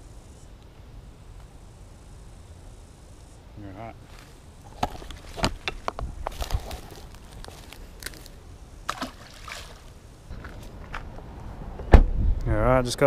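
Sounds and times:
river water splashing: 0:08.8 - 0:10.6.

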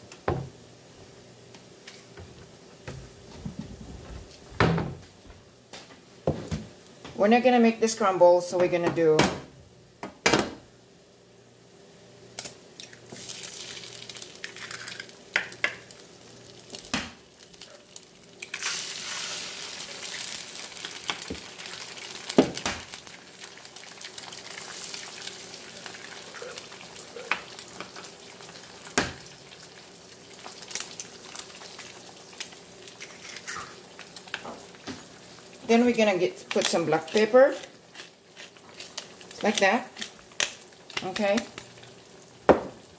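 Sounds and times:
eggs sizzling in a pan: 0:09.8 - 0:42.9
eggshells cracking on pan rim: 0:12.4 - 0:16.0, 0:37.9 - 0:41.7.

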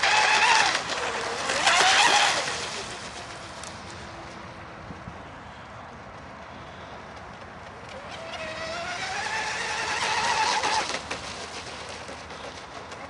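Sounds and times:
speedboat motor whining: 0:00.0 - 0:04.5, 0:07.6 - 0:13.0.

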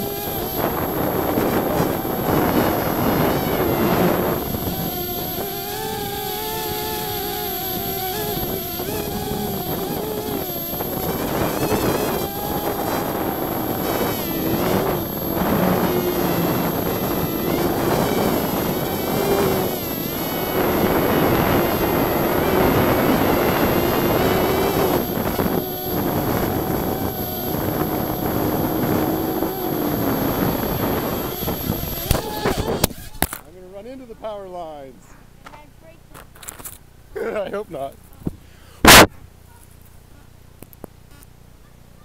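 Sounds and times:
quadcopter motors whining: 0:00.0 - 0:33.5.

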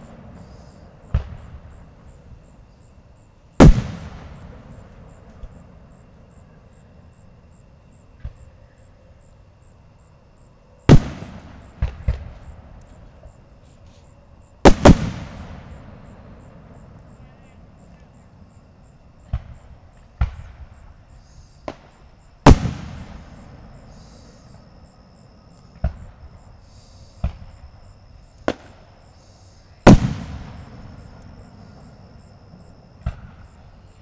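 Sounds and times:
fireworks booming: 0:00.0 - 0:02.9, 0:03.5 - 0:06.2, 0:10.8 - 0:14.0, 0:14.6 - 0:18.0, 0:19.2 - 0:34.0
small firework pops: 0:01.1 - 0:01.7, 0:03.6 - 0:05.6, 0:08.2 - 0:08.6, 0:10.9 - 0:13.0, 0:13.6 - 0:15.8, 0:19.2 - 0:20.8, 0:21.6 - 0:24.2, 0:25.6 - 0:26.2, 0:27.1 - 0:27.7, 0:28.4 - 0:28.9, 0:29.8 - 0:31.4, 0:33.0 - 0:33.6.

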